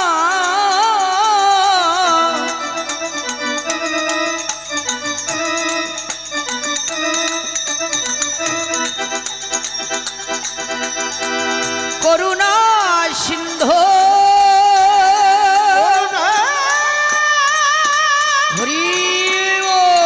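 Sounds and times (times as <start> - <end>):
person singing: 0.0 - 5.9, 11.8 - 20.0
hand cymbals striking: 0.0 - 20.0
harmonium melody: 0.0 - 20.0.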